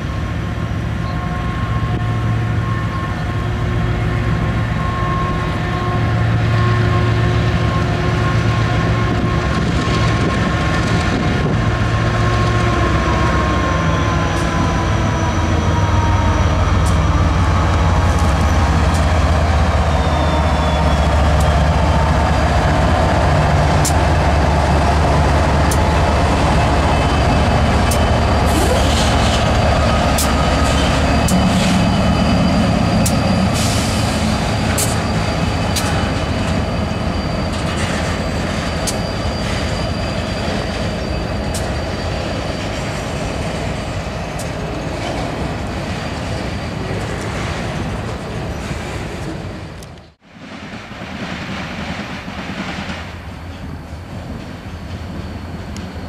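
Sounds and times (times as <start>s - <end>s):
diesel locomotive engines droning: 0.0s - 56.0s
train wheels clicking over rail joints: 21.2s - 46.3s.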